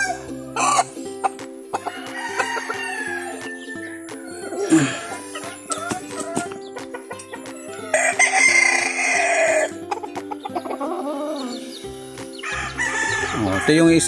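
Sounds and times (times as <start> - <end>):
rooster crowing: 1.8 - 6.4, 7.7 - 9.7, 12.4 - 14.0.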